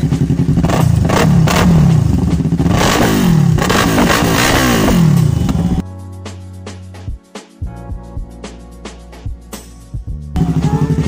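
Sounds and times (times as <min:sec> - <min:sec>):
motorcycle engine idling and revving: 0:00.0 - 0:05.8, 0:10.0 - 0:11.0.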